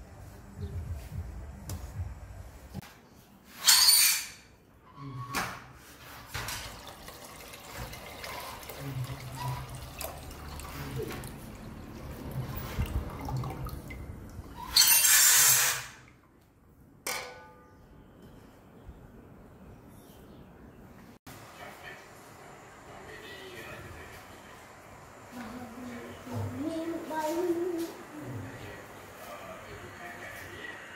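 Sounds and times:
liquid pouring and splashing: 6.4 - 16.1.

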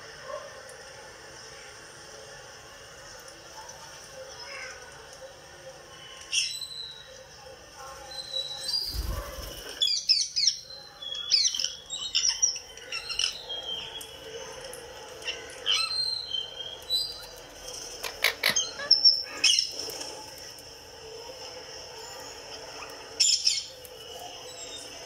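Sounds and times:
parakeet squawking and chirping: 18.0 - 20.0.

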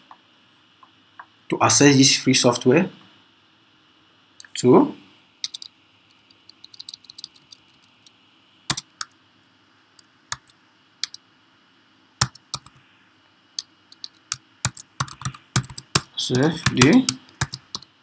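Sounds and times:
computer keyboard typing: 5.4 - 8.1, 8.7 - 9.2, 10.3 - 11.2, 12.2 - 12.8, 13.6 - 17.9.

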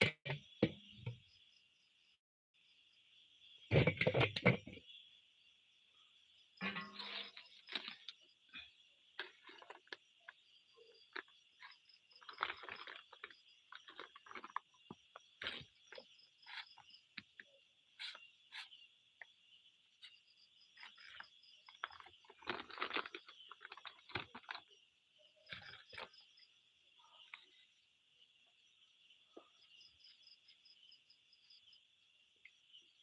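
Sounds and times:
crickets trilling: 0.2 - 33.0
crackling and rustling clicks: 20.9 - 24.8.

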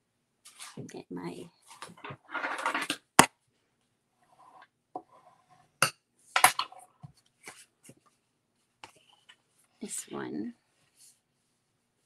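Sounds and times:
faint paper rustle: 7.1 - 12.0.

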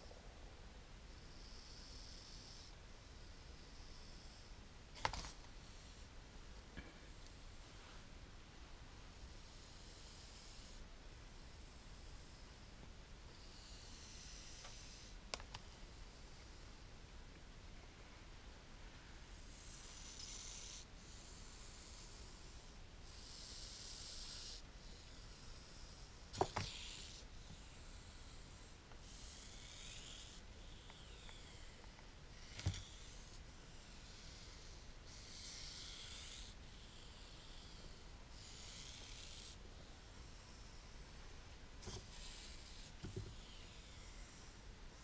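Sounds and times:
snake hissing: 1.1 - 4.6, 9.2 - 12.5, 13.4 - 15.2, 19.4 - 41.2, 41.8 - 45.0.

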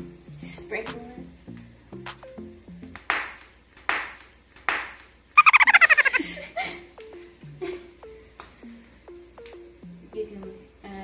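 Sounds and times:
light background music: 0.0 - 5.4, 6.2 - 11.0
girl giggling: 5.4 - 6.9.

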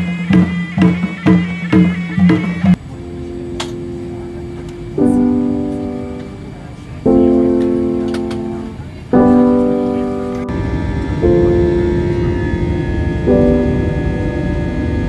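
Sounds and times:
slow piano chords: 2.7 - 15.0
low steady rumble: 10.5 - 15.0.

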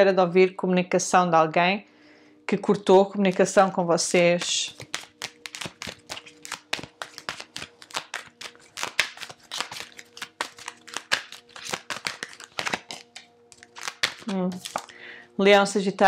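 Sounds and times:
cards shuffled by hand: 3.3 - 15.0.

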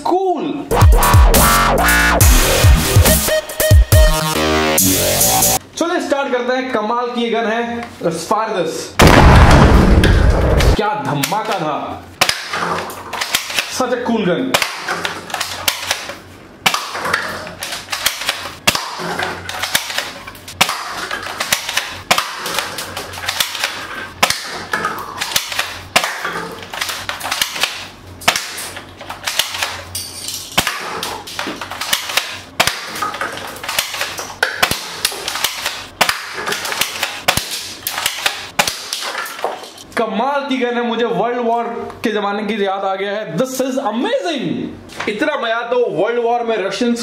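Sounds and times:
toy gun snapping and clicking: 12.2 - 13.8, 14.6 - 29.9, 30.6 - 39.2
pellets hitting paper cups: 16.7 - 28.8.

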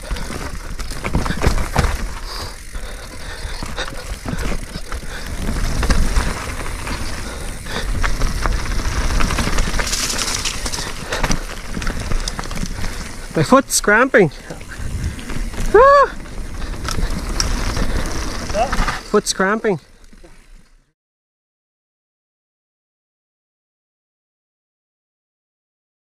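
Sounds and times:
bike chain and frame rattling: 0.0 - 20.7
bike tyres over dirt and rock: 0.0 - 20.9
wind buffeting microphone: 14.6 - 18.7.

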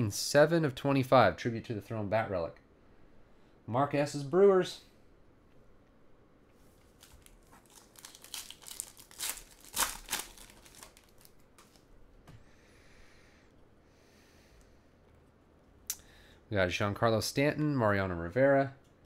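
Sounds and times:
foil wrapper tearing and crinkling: 6.9 - 11.8.

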